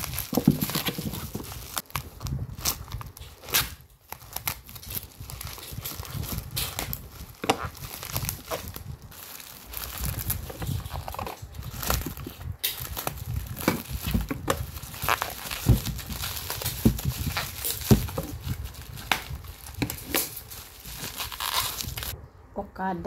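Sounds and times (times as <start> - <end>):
plastic wrapping crinkling: 0.0 - 22.2.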